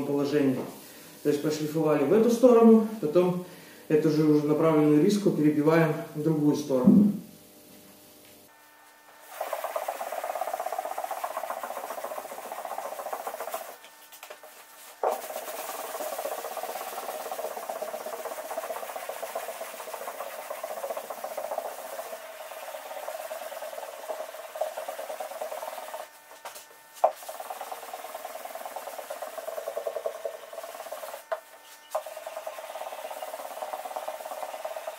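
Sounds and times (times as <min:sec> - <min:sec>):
sharp knock: 0:06.8 - 0:07.2
sanding block rasping on metal: 0:09.3 - 0:13.8, 0:15.0 - 0:26.1, 0:27.0 - 0:31.3, 0:31.9 - 0:34.9.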